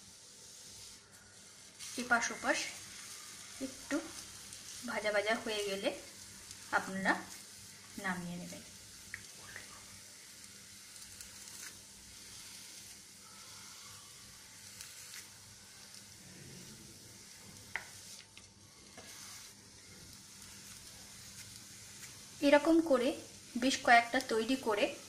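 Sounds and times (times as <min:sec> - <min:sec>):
crepe sizzling in a pan: 0:00.0 - 0:25.0.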